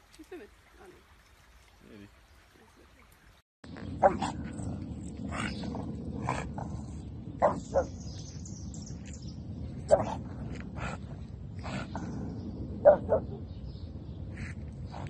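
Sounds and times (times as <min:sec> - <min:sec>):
steady low rumble: 0:03.6 - 0:15.0
dog barking: 0:04.0 - 0:04.5, 0:07.4 - 0:08.0, 0:09.9 - 0:10.2, 0:12.8 - 0:13.5.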